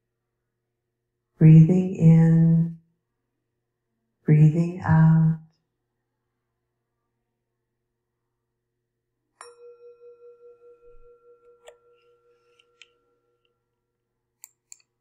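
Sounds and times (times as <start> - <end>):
meditation bell ringing: 9.4 - 14.0.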